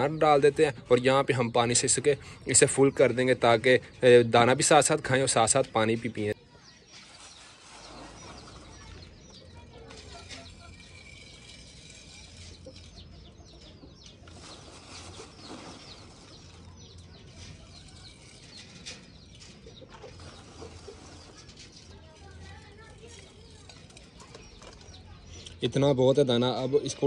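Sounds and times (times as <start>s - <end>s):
birds chirping: 0.0s - 27.0s
birdseed rustling in plastic bag: 14.1s - 25.1s.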